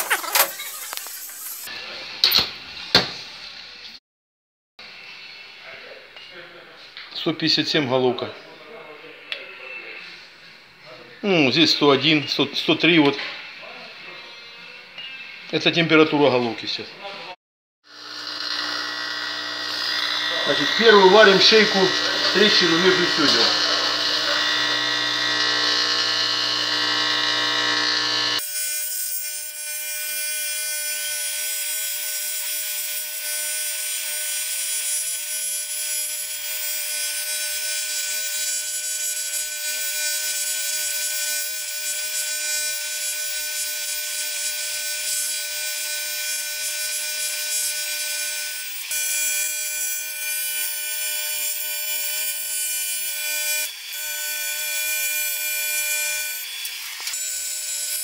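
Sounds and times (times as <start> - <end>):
welding arc hissing buzz: 0.0 - 1.7, 17.9 - 58.0.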